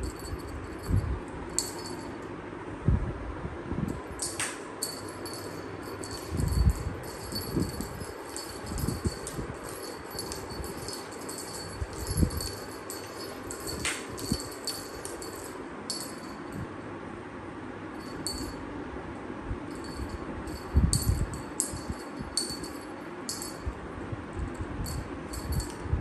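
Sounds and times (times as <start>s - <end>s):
small chimes tinkling: 0.0s - 2.2s, 4.2s - 16.6s, 18.0s - 18.6s, 19.7s - 23.7s.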